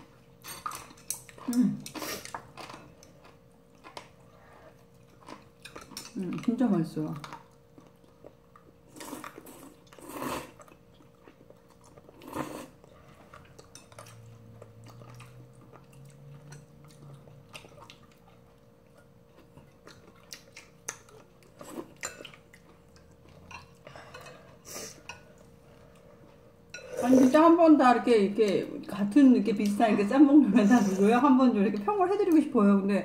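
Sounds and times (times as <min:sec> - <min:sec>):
quiet chewing: 0:00.3 - 0:27.0
chopsticks clinking on bowls: 0:05.2 - 0:06.6, 0:13.3 - 0:14.3
slurping noodles: 0:08.9 - 0:10.6.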